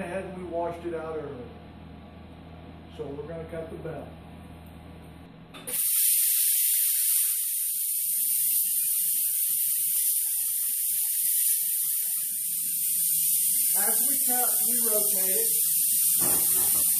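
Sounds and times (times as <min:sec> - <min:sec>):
plasma cutter hissing: 0:05.7 - 0:16.9.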